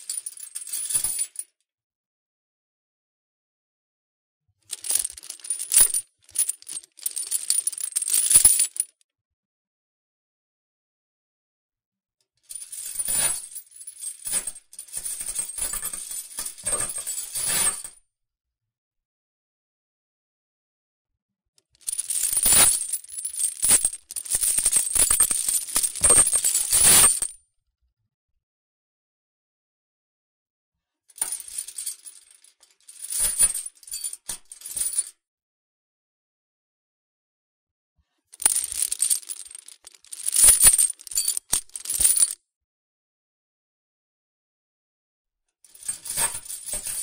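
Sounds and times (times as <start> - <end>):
metal chain rattling: 4.7 - 8.9, 21.9 - 27.3, 31.2 - 32.3, 38.4 - 42.4, 45.8 - 47.0.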